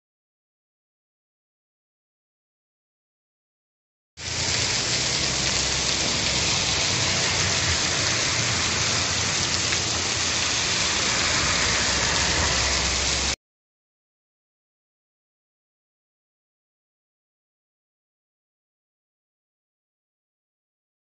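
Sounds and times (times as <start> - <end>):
heavy rain falling: 4.2 - 13.4.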